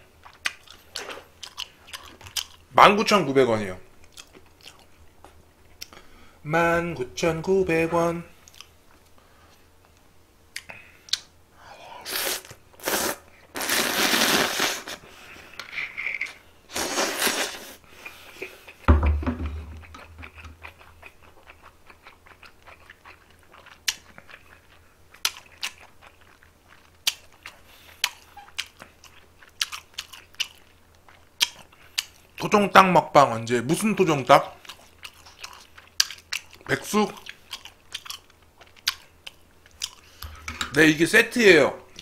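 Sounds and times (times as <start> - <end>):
chewing with crunching clicks: 0.2 - 2.6, 4.0 - 6.0, 8.4 - 11.3, 19.8 - 32.4, 34.6 - 40.4
loud noodle slurps: 12.1 - 15.0, 16.2 - 17.8
dull thump: 18.9 - 19.8.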